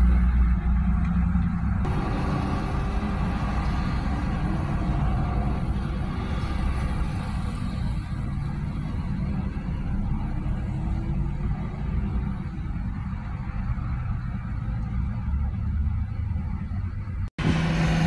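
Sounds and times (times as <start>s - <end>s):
road traffic passing: 0.0s - 18.0s.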